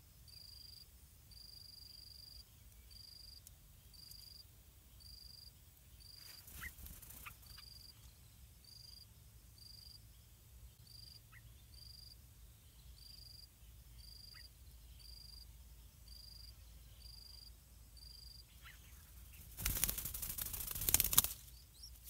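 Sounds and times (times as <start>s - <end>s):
faint insect chirping: 0.0s - 22.0s.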